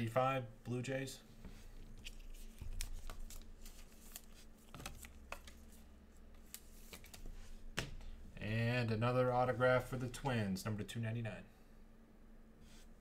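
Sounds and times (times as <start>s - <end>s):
cards rustling: 1.8s - 8.1s.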